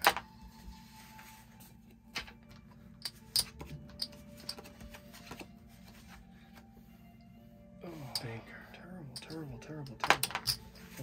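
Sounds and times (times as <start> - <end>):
faint background music: 0.0 - 11.0
casino chips clicking: 10.0 - 10.6.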